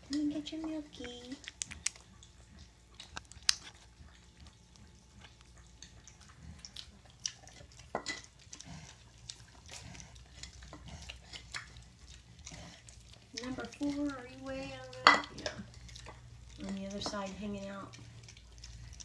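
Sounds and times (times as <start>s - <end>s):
piglets smacking and lapping: 0.0s - 19.0s.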